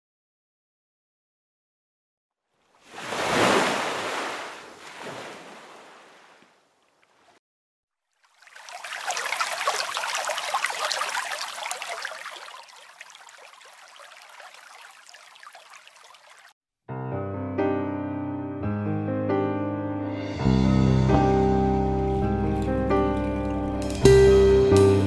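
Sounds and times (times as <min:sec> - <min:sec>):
rushing splashing water: 0:02.8 - 0:06.4, 0:08.1 - 0:16.6.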